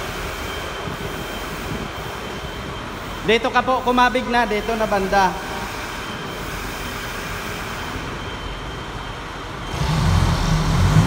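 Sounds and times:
vehicle engine revving: 9.7s - 11.0s.

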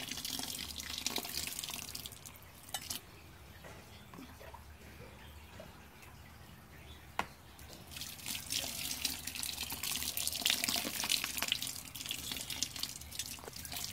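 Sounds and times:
water pouring and splashing: 0.0s - 3.1s, 7.6s - 13.9s.

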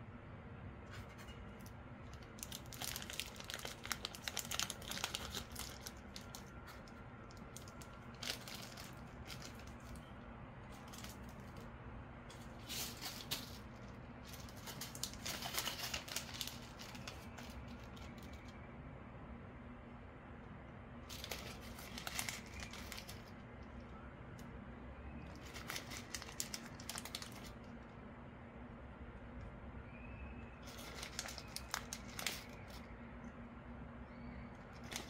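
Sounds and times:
plastic zip bag crinkling: 1.6s - 10.0s, 10.7s - 11.6s, 12.3s - 18.4s, 21.1s - 23.4s, 25.3s - 27.6s, 30.6s - 32.8s, 34.7s - 35.0s.

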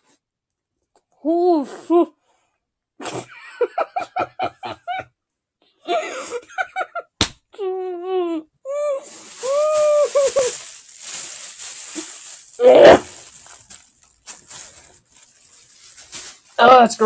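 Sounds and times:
muffled voice with full mouth: 1.2s - 2.2s, 7.6s - 10.6s, 12.6s - 13.2s
plastic bag crinkling: 8.9s - 17.0s.

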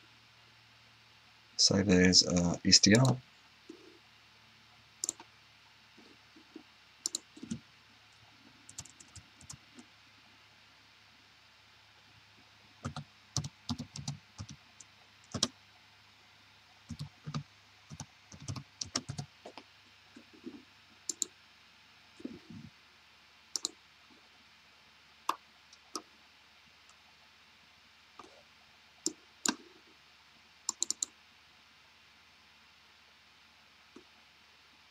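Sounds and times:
keyboard typing: 5.0s - 5.2s, 7.0s - 7.6s, 8.7s - 9.6s, 12.8s - 14.6s, 15.3s - 15.5s, 16.9s - 19.3s, 20.2s - 21.3s, 23.6s - 23.8s, 30.7s - 31.1s
mouse clicks: 5.0s - 5.3s, 7.0s - 7.6s, 21.1s - 21.3s, 23.6s - 23.8s, 30.7s - 31.1s.

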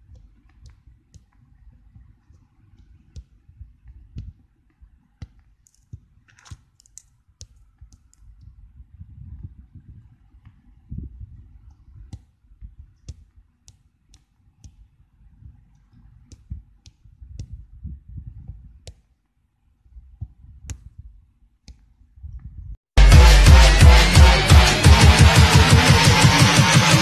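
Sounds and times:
loud music with heavy beat: 23.0s - 27.0s.

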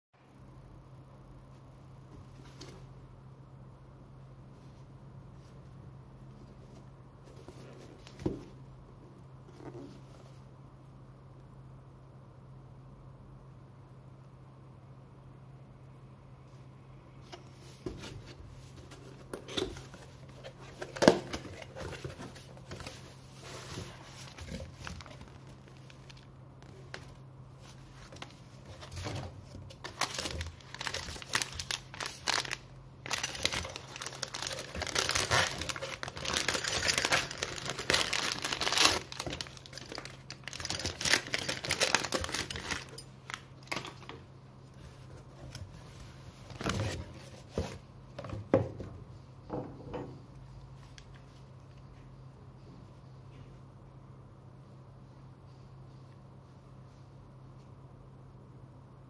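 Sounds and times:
faint low hum: 0.2s - 59.0s
plastic bag crinkling and tearing: 29.8s - 44.0s.

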